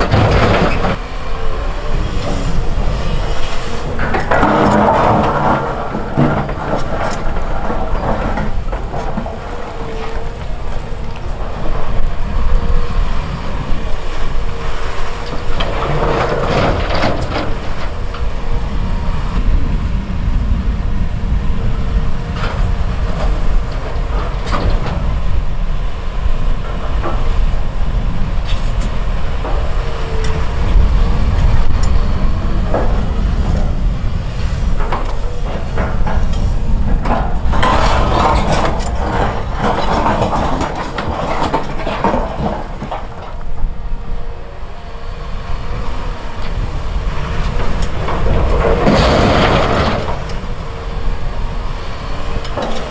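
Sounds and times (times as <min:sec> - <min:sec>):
excavator diesel engine running: 0:00.0 - 0:52.9
rocks dropping into truck bed: 0:03.9 - 0:09.7, 0:35.6 - 0:43.5, 0:48.2 - 0:50.3
rocks scraping in steel bucket: 0:34.6 - 0:43.2.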